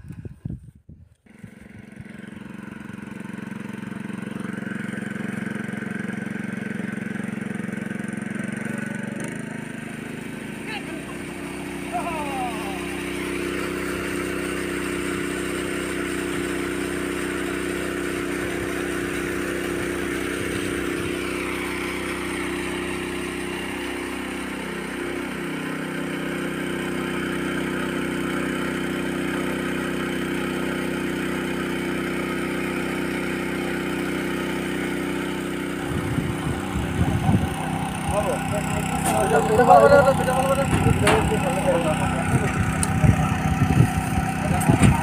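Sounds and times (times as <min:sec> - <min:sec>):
water pump engine running: 0:01.2 - 0:45.0
water gushing: 0:09.4 - 0:45.0.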